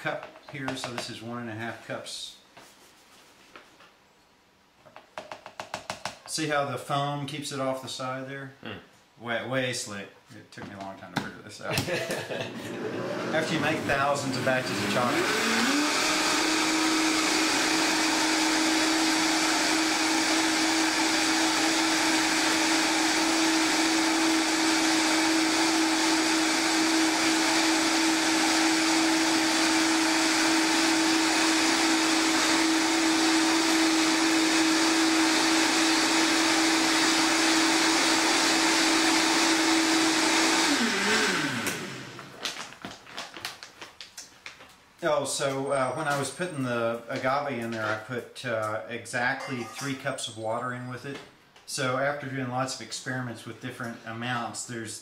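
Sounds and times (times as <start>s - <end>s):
blender running at high speed: 12.5s - 42.3s.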